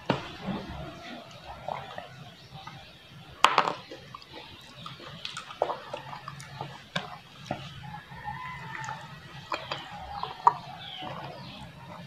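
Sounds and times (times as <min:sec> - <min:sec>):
wet chewing and lip-smacking: 0:03.8 - 0:12.0.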